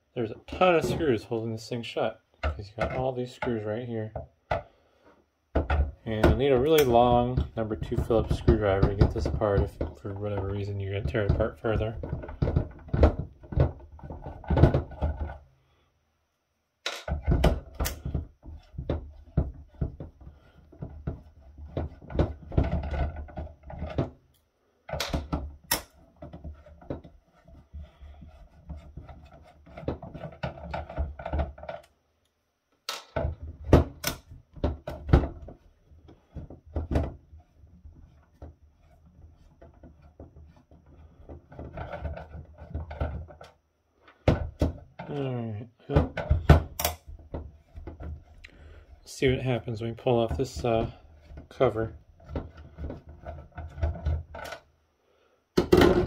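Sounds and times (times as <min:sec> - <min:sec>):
tool clicking and knocking: 0:05.5 - 0:15.4, 0:16.8 - 0:31.9, 0:45.9 - 0:48.3.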